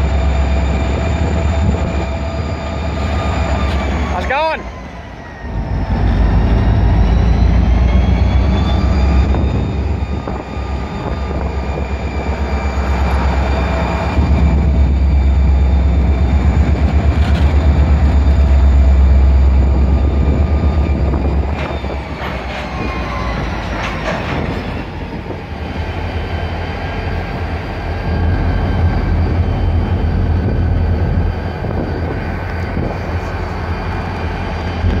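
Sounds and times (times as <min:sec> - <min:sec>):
high whine: 0:00.0 - 0:35.0
locomotive heavy rumble: 0:00.0 - 0:35.0
sharp knocks from train: 0:21.5 - 0:24.9.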